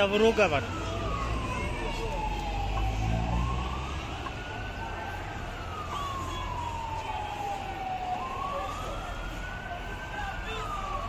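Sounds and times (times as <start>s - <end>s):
emergency siren wailing: 0.0s - 11.0s.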